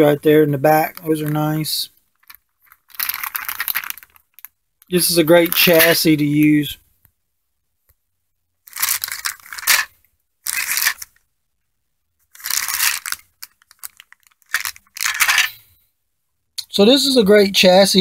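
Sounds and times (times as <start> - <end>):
plastic bags crinkling: 0.7 - 6.3, 8.7 - 11.2, 12.3 - 15.6
small crackles: 0.8 - 7.1, 8.6 - 11.3, 12.2 - 15.6.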